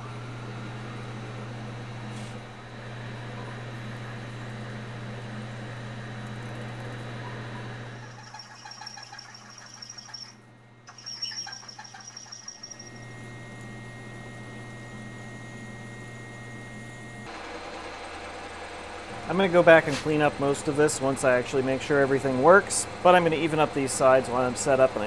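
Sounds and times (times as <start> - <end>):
milling machine motor hum: 0.0 - 25.0
high thin ringing: 8.1 - 13.1.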